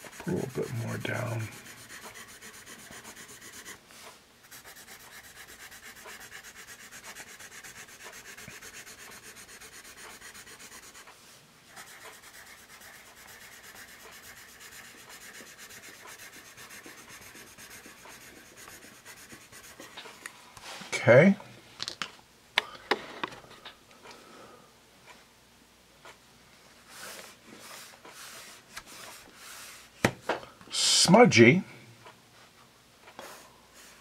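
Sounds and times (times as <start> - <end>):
pencil scratching on paper: 0.0 - 20.1, 26.9 - 29.8.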